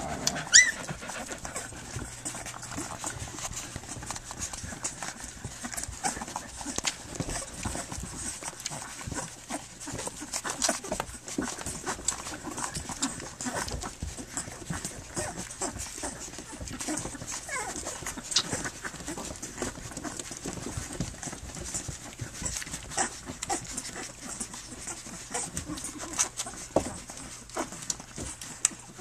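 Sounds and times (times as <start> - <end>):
puppies suckling clicks and smacks: 0.0 - 29.0
puppy grunts: 0.0 - 29.0
puppy squeak: 0.3 - 0.9.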